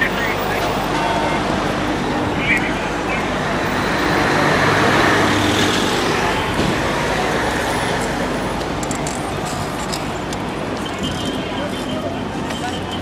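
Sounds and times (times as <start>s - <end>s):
heavy vehicle engine running: 0.0s - 13.0s
street noise: 0.0s - 13.0s.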